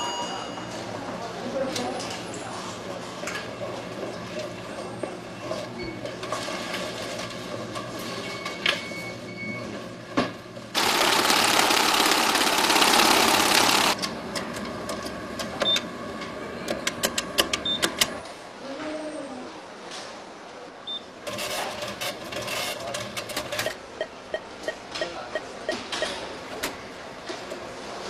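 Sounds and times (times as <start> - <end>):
keypad beep: 17.6 - 17.9, 23.6 - 26.2.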